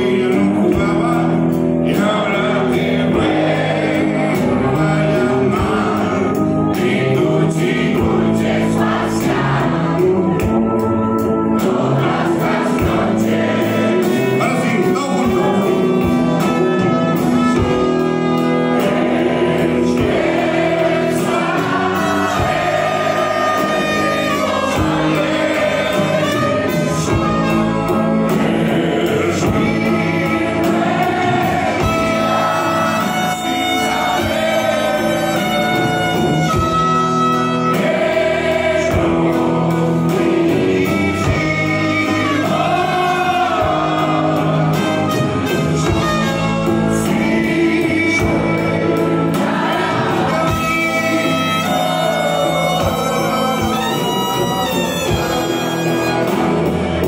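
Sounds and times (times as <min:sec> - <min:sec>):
live band playing: 0:00.0 - 0:57.0
person singing: 0:38.9 - 0:56.4.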